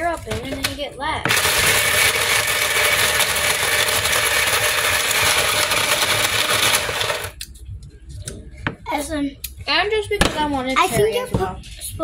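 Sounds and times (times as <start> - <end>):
ice shaving machine grinding: 1.3 - 7.4.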